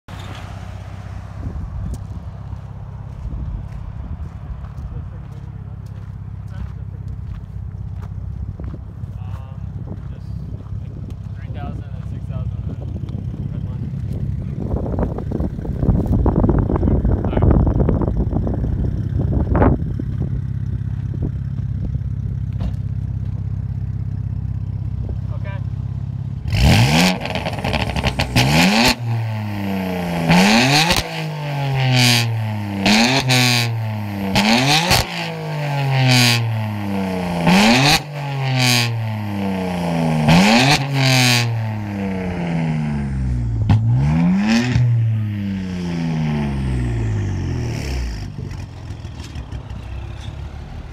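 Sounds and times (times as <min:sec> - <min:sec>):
car engine idling: 0:00.1 - 0:30.5, 0:41.5 - 0:50.9
car engine revving: 0:00.1 - 0:50.9
exhaust cracks: 0:00.1 - 0:50.9.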